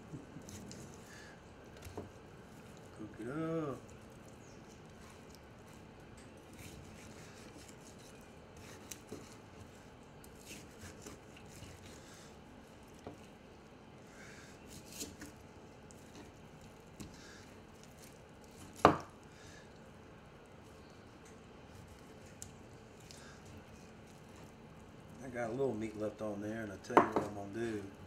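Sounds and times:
knife slicing and scraping meat: 0:04.7 - 0:13.0, 0:14.6 - 0:15.4.

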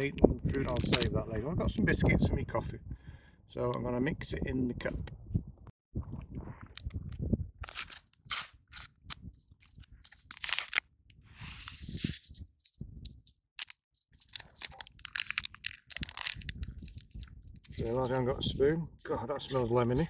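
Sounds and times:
foil sachets crinkling: 0:09.6 - 0:10.8, 0:13.6 - 0:17.3.

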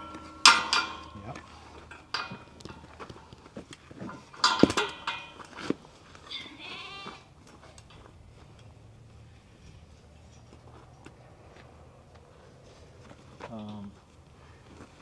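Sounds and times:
steel pipe gate clanking: 0:00.0 - 0:05.8
sheep bleating: 0:06.3 - 0:07.3.

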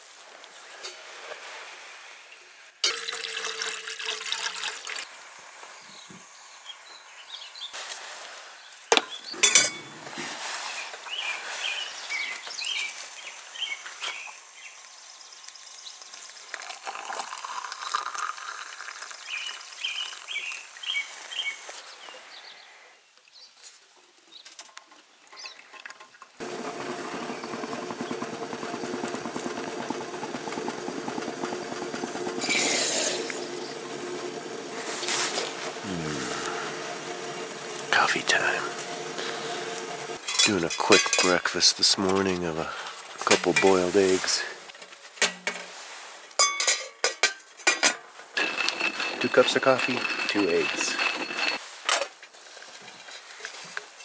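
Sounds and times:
water pouring into coffee press: 0:02.8 - 0:05.1, 0:16.1 - 0:20.8, 0:26.4 - 0:40.6, 0:48.4 - 0:51.6
water pouring into a steel pot: 0:02.8 - 0:05.2, 0:16.1 - 0:20.8, 0:26.4 - 0:40.3, 0:48.4 - 0:51.6
small birds chirping: 0:05.8 - 0:07.8, 0:10.6 - 0:16.6, 0:19.2 - 0:23.6
steady hum: 0:26.4 - 0:40.3.

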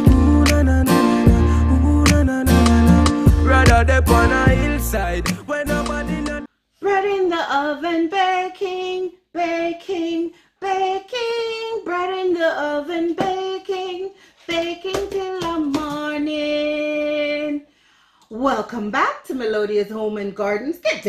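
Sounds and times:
woman singing unaccompanied: 0:06.2 - 0:17.7.

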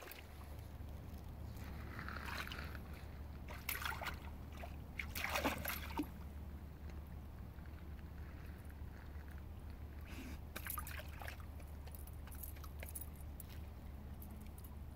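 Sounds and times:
dog splashing in water: 0:03.5 - 0:06.2, 0:10.6 - 0:13.6.

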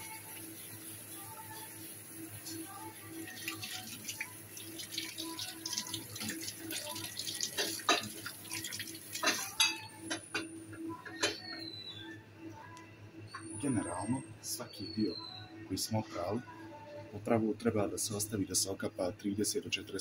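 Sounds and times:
tap water splashing in steel sink: 0:03.4 - 0:09.8.

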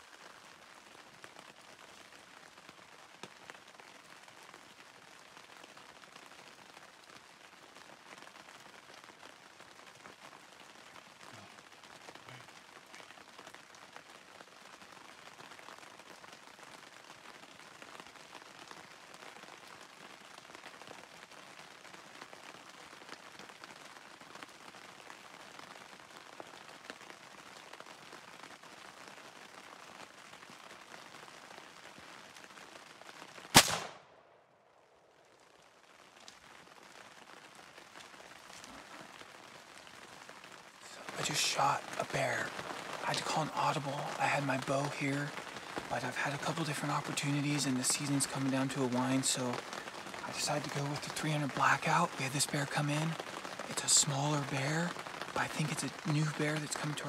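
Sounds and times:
rain falling on forest: 0:00.0 - 0:57.0
rifle shot: 0:33.5 - 0:34.4.

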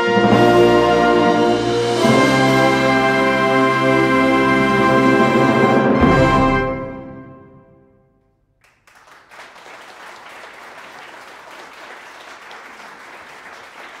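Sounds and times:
brass fanfare band: 0:00.0 - 0:07.9
audience applause: 0:08.6 - 0:14.0.

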